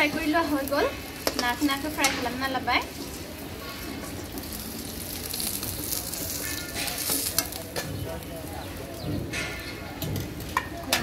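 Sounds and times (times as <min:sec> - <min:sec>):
hot oil sizzling in wok: 0:00.0 - 0:11.0
spoon tapping and scraping pan: 0:01.2 - 0:02.4.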